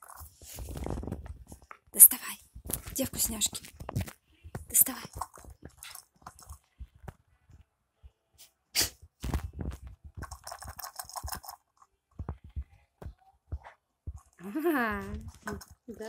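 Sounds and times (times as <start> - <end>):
rustling: 0.0 - 1.7.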